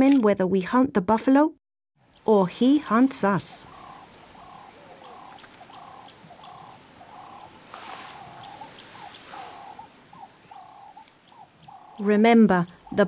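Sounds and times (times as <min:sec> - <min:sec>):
bird calling: 0:02.1 - 0:13.0
faint high ticks: 0:05.1 - 0:06.6, 0:10.6 - 0:11.9.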